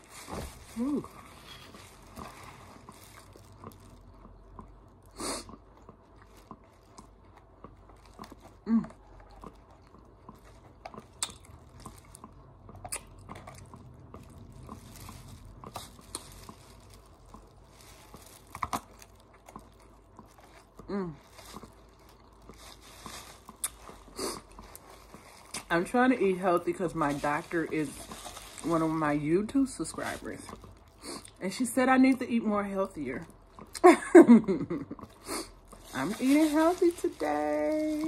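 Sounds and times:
chewing and crunching: 0.0s - 38.0s
wet mouth smacking: 11.2s - 11.4s.

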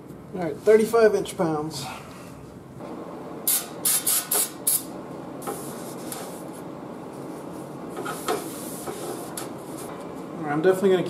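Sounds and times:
aerosol spray can hissing: 3.5s - 4.9s.

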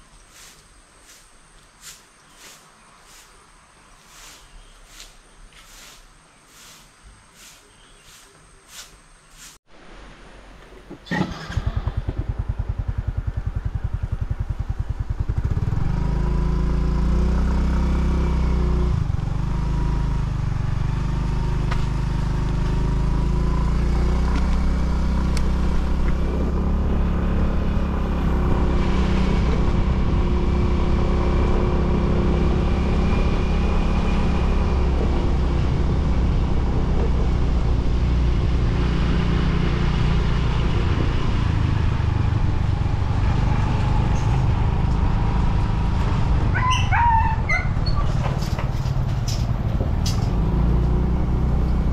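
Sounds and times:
motorcycle engine running: 11.3s - 46.8s.

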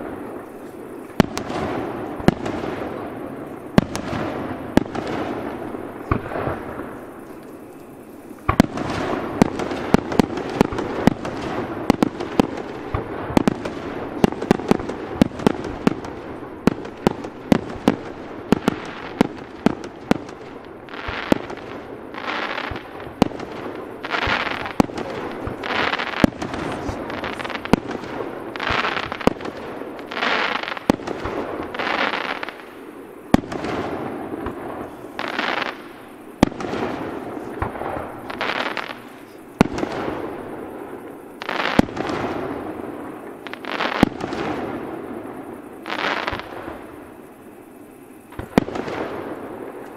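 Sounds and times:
firework bangs: 0.0s - 47.3s, 48.3s - 49.9s
firework shells hissing: 16.8s - 32.8s.

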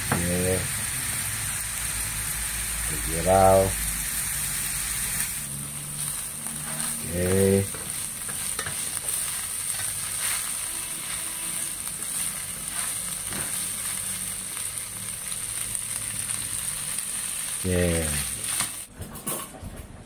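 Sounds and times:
food sizzling in a wok: 0.0s - 18.9s
spatula scraping a wok: 6.0s - 13.7s.

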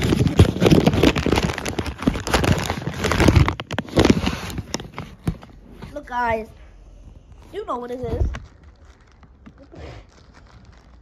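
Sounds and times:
packaging crackling and rustling: 0.0s - 6.1s, 7.3s - 11.0s.

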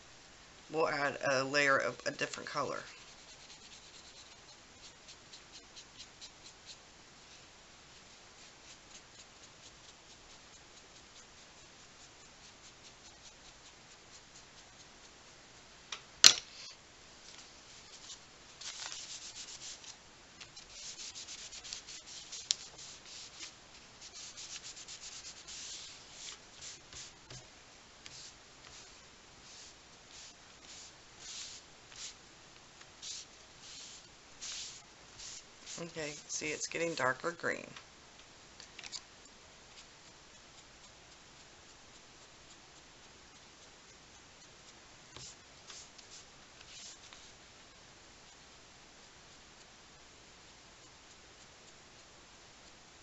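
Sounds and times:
pencil scribbling on paper: 2.6s - 6.8s, 8.0s - 15.2s, 17.9s - 32.2s, 33.0s - 36.9s, 45.1s - 47.3s.

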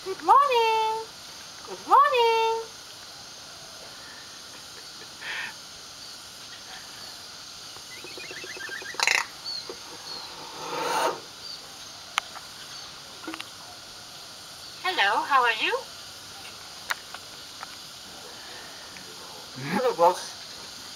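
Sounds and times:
myna bird rasping calls: 7.9s - 11.5s
myna bird harsh squawk: 10.0s - 11.3s.

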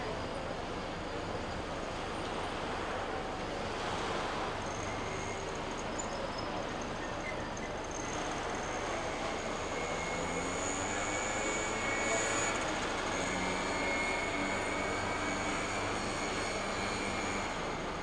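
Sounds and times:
boat engines droning: 0.0s - 18.0s
faint high whine: 0.0s - 18.0s.

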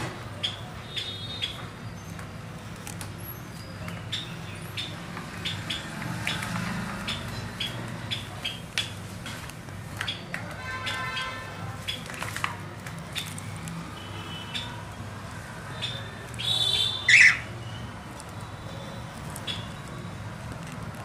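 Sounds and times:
cockatiels chirping: 0.4s - 2.2s, 3.4s - 8.9s, 15.7s - 18.3s, 19.3s - 20.1s.

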